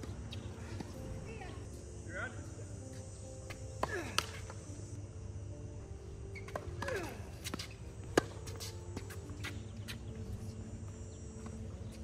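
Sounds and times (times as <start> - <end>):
racket hitting tennis ball: 3.8 - 4.6, 6.5 - 9.5.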